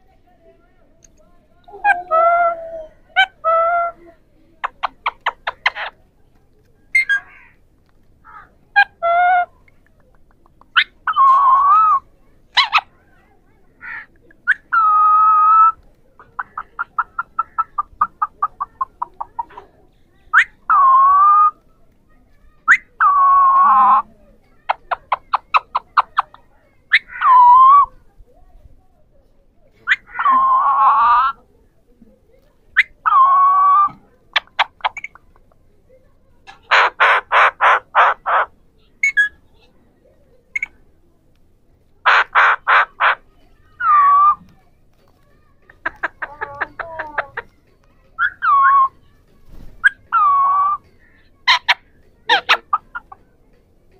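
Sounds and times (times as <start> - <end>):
parakeets squawking: 4.6 - 6.0, 7.0 - 7.6, 12.6 - 12.9, 13.8 - 19.5, 22.6 - 27.9, 29.8 - 31.4, 32.8 - 35.3, 36.6 - 39.4, 42.0 - 44.4, 48.2 - 48.9, 49.8 - 53.2
parakeet long steady calls: 42.0 - 43.2.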